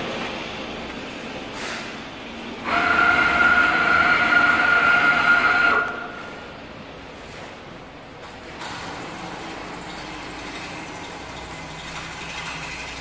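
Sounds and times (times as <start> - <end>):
printer motor whine: 2.6 - 6.4.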